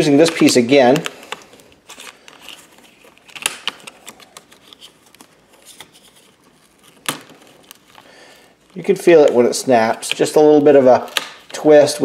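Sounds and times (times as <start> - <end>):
plastic clips clicking and snapping: 10.0 - 11.7.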